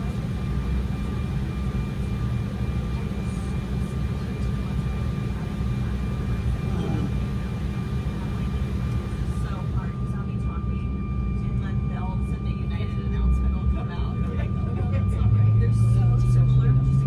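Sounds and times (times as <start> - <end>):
aircraft cabin rumble: 0.0 - 17.0.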